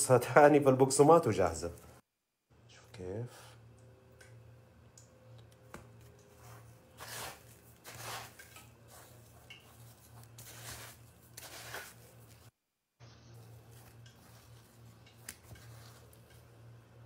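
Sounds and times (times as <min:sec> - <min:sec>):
crumbly rustling scrapes: 0:06.3 - 0:16.4.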